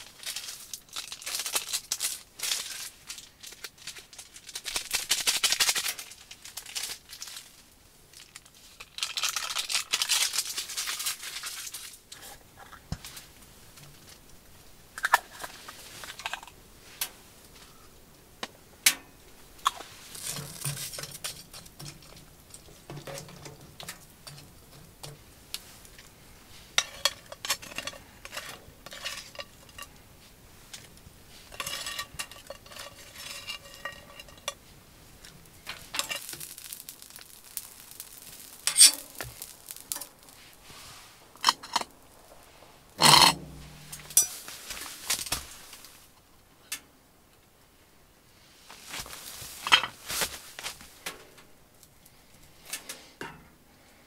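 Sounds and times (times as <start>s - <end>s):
utensil scraping metal pot: 19.6s - 25.8s, 26.5s - 30.0s, 31.3s - 34.7s, 35.6s - 42.0s, 43.0s - 44.5s.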